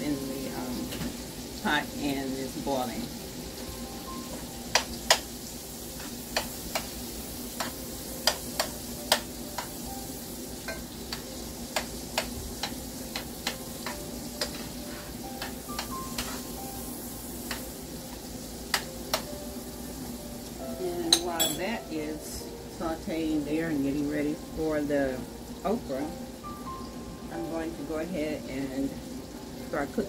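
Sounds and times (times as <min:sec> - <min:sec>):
onions sizzling in a skillet: 0:00.0 - 0:30.0
utensil clicking against pan: 0:07.6 - 0:09.8, 0:10.7 - 0:14.6.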